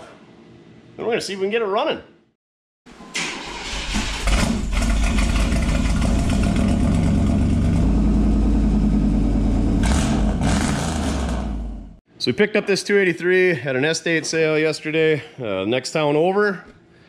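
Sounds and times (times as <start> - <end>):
car engine revving: 4.2 - 12.0
car engine idling: 4.3 - 10.4.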